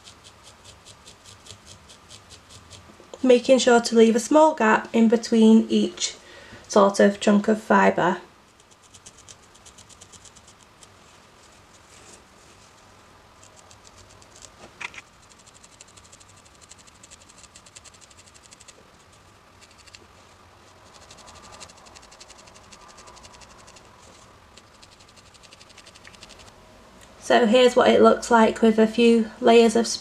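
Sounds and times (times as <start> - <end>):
felting needle scratchy ticks: 0.0 - 2.9, 8.5 - 11.9, 13.4 - 20.1, 20.7 - 26.6.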